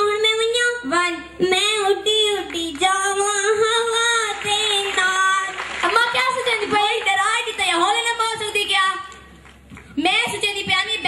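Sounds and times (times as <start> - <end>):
girl singing: 0.0 - 5.5.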